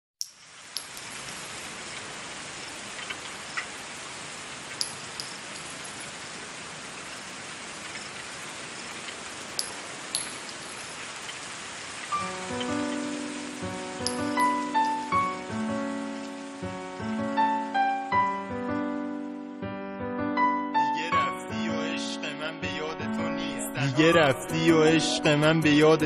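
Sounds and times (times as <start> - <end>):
steady rain falling: 0.2 - 19.7, 20.8 - 26.0
music: 12.1 - 26.0.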